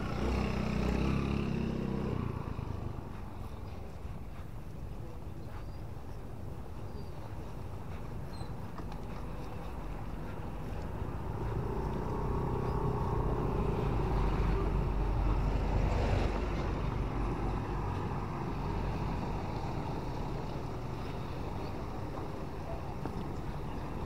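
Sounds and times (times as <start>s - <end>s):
vehicle engine passing: 0.0s - 4.0s, 9.6s - 22.3s.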